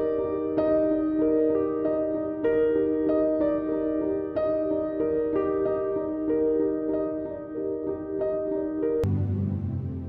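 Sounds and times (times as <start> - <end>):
low held chord: 9.0 - 10.0.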